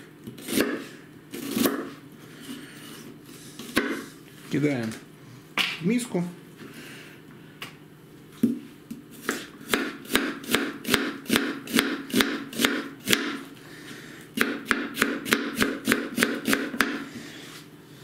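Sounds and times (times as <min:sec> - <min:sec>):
knife chopping on cutting board: 0:00.3 - 0:02.0, 0:03.6 - 0:04.0, 0:09.2 - 0:13.4, 0:14.4 - 0:17.0.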